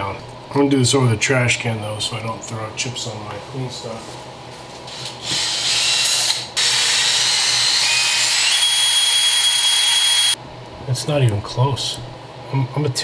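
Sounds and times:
drill grinding steel with whine: 5.2s - 10.4s.

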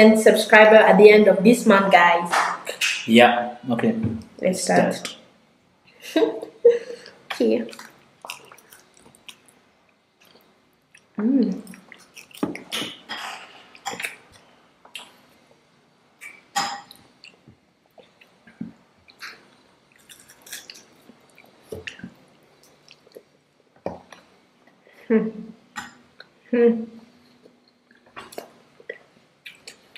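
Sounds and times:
chewing and wet mouth sounds: 7.0s - 15.6s, 16.2s - 24.3s, 27.2s - 29.9s.

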